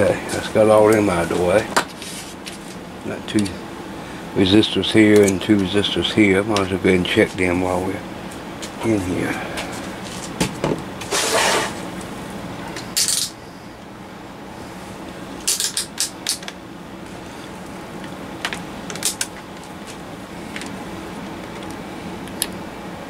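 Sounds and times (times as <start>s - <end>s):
steady low hum: 0.0s - 23.0s
rustling scrapes: 1.2s - 2.8s, 11.0s - 11.9s.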